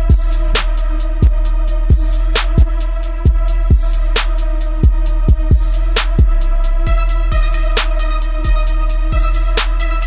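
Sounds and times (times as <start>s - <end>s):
deep kick drums: 0.0s - 10.0s
hi-hats: 0.0s - 10.0s.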